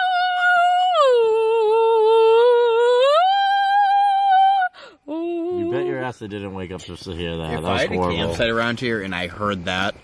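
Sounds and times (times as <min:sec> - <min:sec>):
woman singing long held notes: 0:00.0 - 0:06.0.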